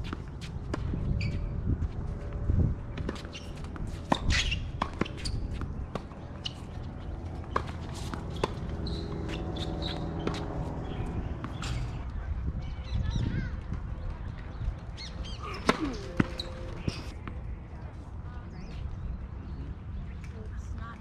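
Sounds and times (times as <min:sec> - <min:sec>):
wind rumble on microphone: 0:00.0 - 0:21.0
tennis ball taps and knocks: 0:07.4 - 0:11.9.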